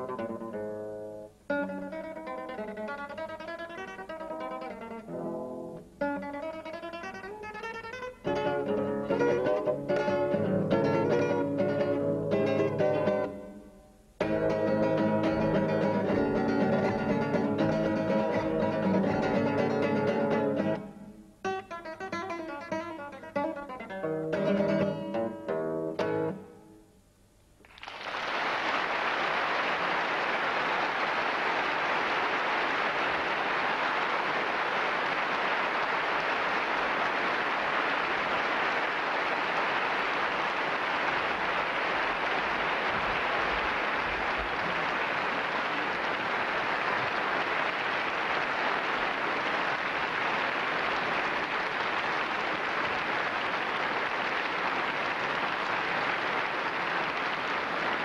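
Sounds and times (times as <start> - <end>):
audience applauding: 6.7 - 13.4, 27.6 - 58.0.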